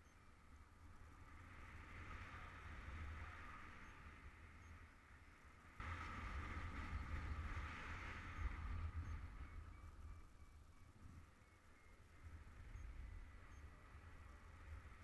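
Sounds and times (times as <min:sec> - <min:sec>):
wind rushing over microphone: 0:05.8 - 0:11.3.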